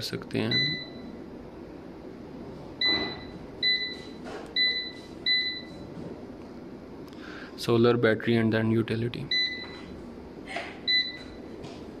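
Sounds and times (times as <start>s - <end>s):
control panel beeps: 0.5s - 1.2s, 2.8s - 5.8s, 9.3s - 10.0s, 10.9s - 11.4s.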